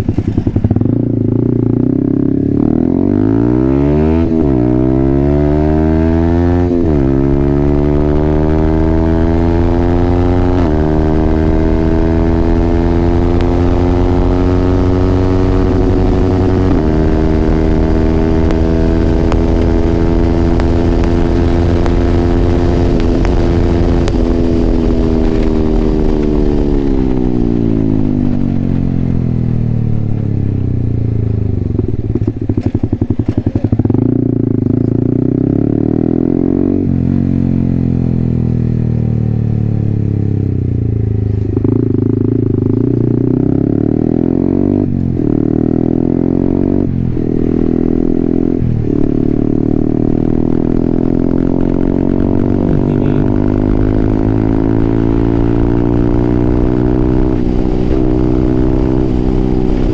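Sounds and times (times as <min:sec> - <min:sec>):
motorcycle engine revving: 0:00.0 - 0:59.9
exhaust stuttering: 0:05.8 - 0:28.5, 0:30.9 - 0:35.8, 0:47.8 - 0:59.9.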